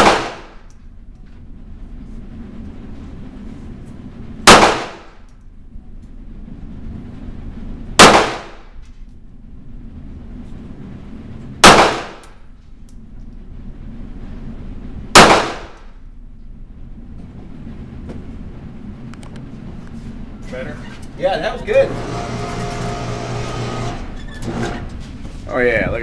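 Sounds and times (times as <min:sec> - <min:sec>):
handgun shots echoing: 0:00.0 - 0:00.6, 0:04.5 - 0:05.1, 0:08.0 - 0:08.6, 0:11.6 - 0:12.3, 0:15.2 - 0:15.9.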